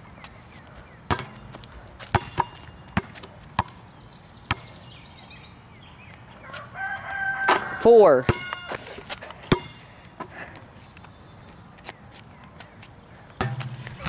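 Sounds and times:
basketball bouncing on asphalt: 0:00.2 - 0:04.9, 0:06.5 - 0:10.3, 0:13.3 - 0:14.0.

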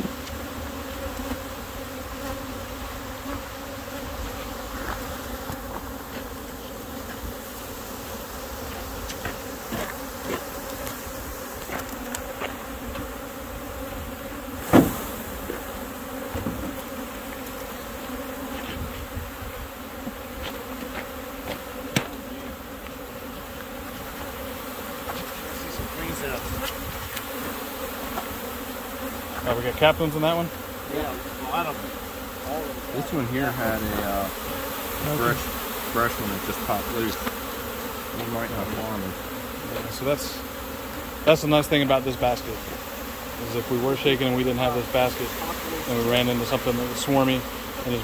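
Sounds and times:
honey bees buzzing: 0:00.0 - 0:48.0
sharp knock: 0:14.7 - 0:15.1.

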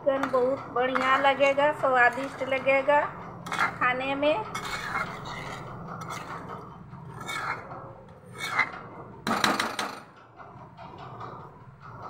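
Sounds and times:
spoon scraping a metal pan: 0:00.1 - 0:08.8.

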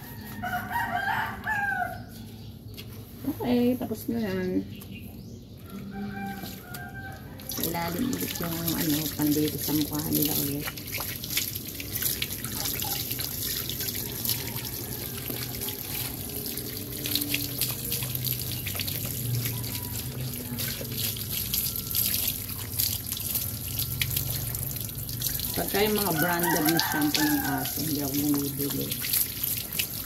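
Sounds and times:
water dripping off fur: 0:02.6 - 0:30.0
hose water splashing: 0:06.1 - 0:30.0.

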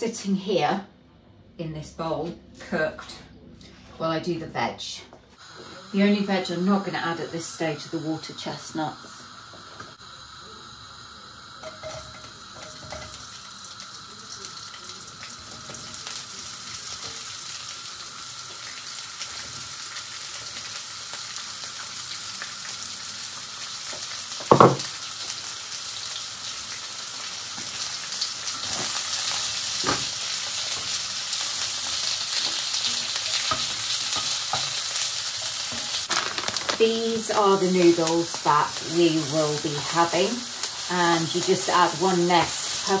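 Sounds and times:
vegetables sizzling in a frying pan: 0:05.4 - 0:43.0
knocks on pan: 0:24.4 - 0:24.9.

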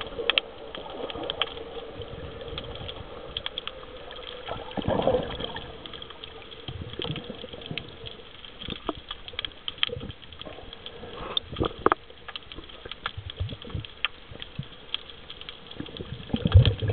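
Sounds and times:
bubbling rushes: 0:00.0 - 0:09.1, 0:15.7 - 0:16.9
faint steady hum: 0:00.0 - 0:16.9
underwater sharp clicks: 0:00.0 - 0:16.9.

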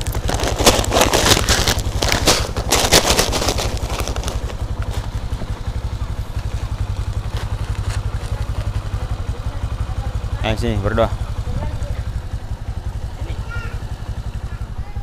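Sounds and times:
plastic bags crackling: 0:00.0 - 0:08.7
scooter engine idling: 0:00.0 - 0:15.0.

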